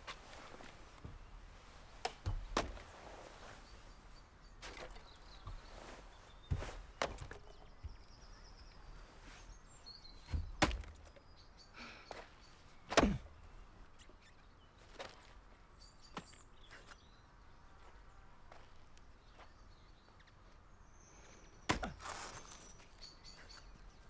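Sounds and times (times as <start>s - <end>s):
birds chirping: 0.0s - 24.0s
axe chopping firewood: 2.0s - 2.8s, 10.3s - 11.2s, 12.9s - 13.4s, 21.7s - 22.4s.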